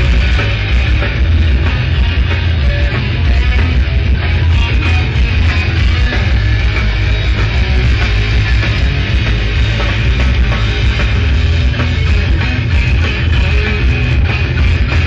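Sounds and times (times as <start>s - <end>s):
rock band playing live: 0.0s - 15.0s.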